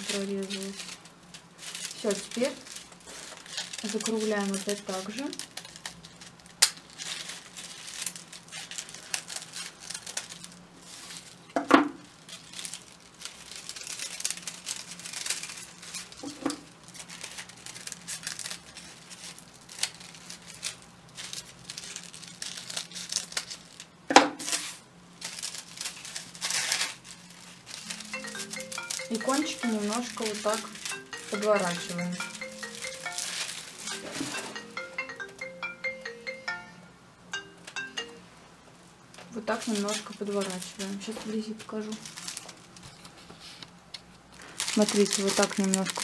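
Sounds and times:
scissors snipping paper: 0.0s - 1.0s, 1.6s - 10.5s
paper crinkling: 0.0s - 34.9s, 39.3s - 46.0s.

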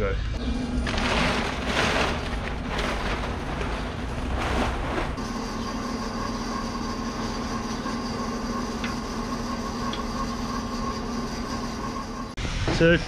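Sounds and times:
wood lathe motor humming: 5.2s - 12.4s.

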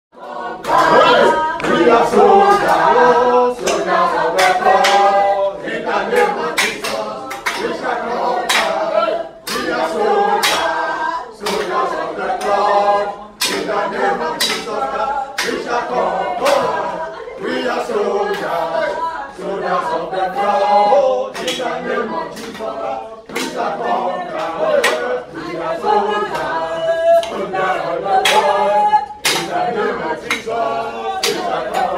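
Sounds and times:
group singing unaccompanied: 0.2s - 31.9s
hand claps: 0.6s - 5.3s, 6.0s - 12.7s, 13.4s - 16.8s, 18.3s - 18.6s, 21.3s - 25.6s, 26.3s - 31.9s.

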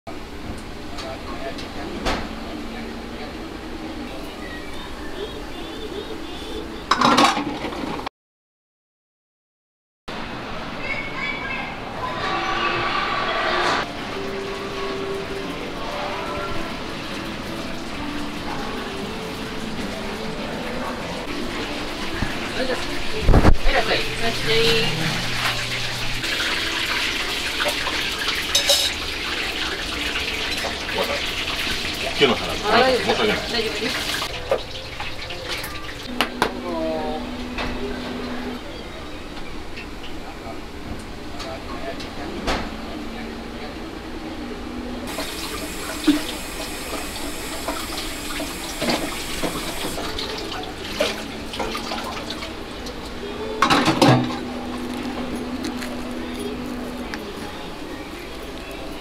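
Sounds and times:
water running from faucet: 14.0s - 36.1s, 45.1s - 53.1s
tap water running into sink: 45.1s - 53.0s.

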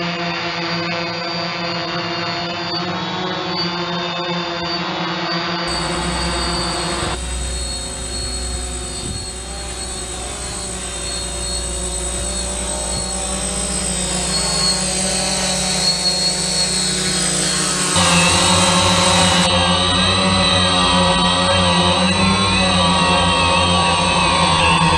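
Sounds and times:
drone buzzing hum: 5.7s - 24.9s.

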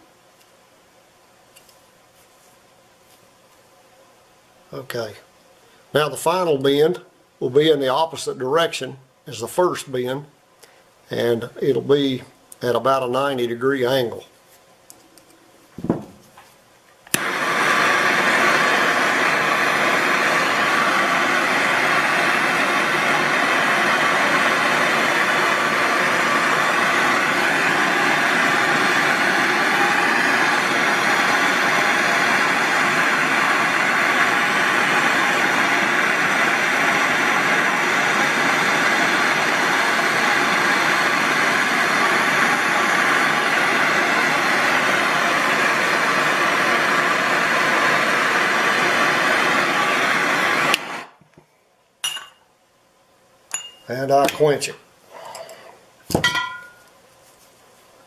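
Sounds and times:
torch ignition click: 17.1s - 51.1s
propane torch hissing: 17.1s - 51.2s.

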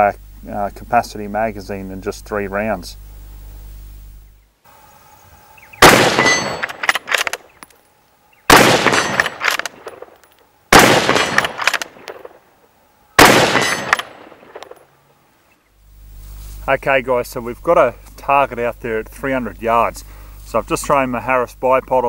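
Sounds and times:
rifle shots: 5.8s - 7.5s, 8.5s - 12.4s, 13.2s - 14.9s
sharp clicks: 5.8s - 7.8s, 8.5s - 12.4s.

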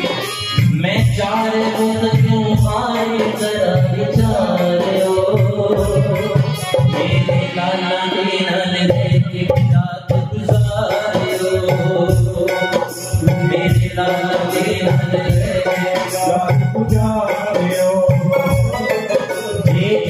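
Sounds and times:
hand drum: 0.0s - 7.6s
held melodic accompaniment: 0.0s - 8.5s, 12.3s - 20.0s
man singing into microphone: 0.0s - 20.0s.

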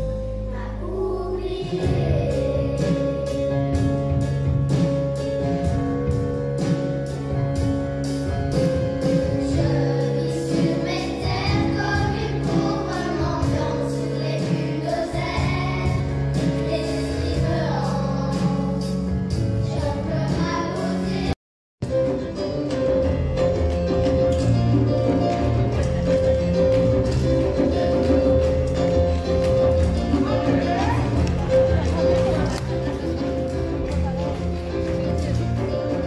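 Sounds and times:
bass guitar: 0.0s - 36.0s
children's choir singing: 9.4s - 18.9s, 19.6s - 21.4s
drum beat: 23.0s - 36.0s.

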